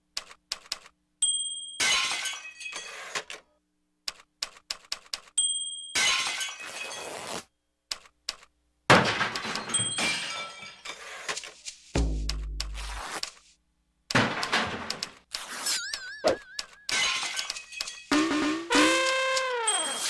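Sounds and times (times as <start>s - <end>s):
glass shattering: 1.7s - 3.1s, 5.8s - 7.4s, 9.0s - 11.1s, 16.8s - 18.2s.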